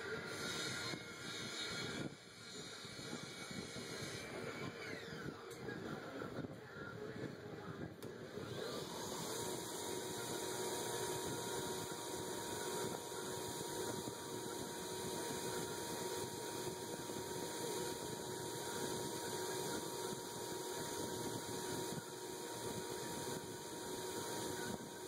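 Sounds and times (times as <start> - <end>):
belt grinder motor humming: 8.5 - 24.8.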